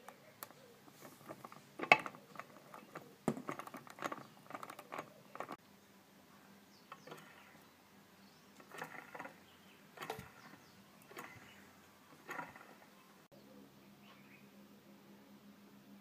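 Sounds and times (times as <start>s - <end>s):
compressor wheel spinning down: 6.9s - 7.6s, 8.6s - 13.0s
short scratchy rasps: 8.6s - 13.0s.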